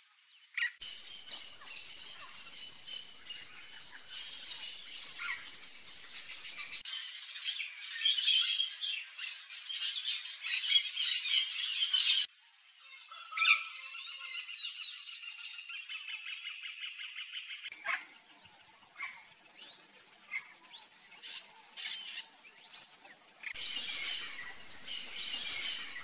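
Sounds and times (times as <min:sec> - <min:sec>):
whistled bird calls: 0:00.7 - 0:06.9, 0:21.9 - 0:26.0.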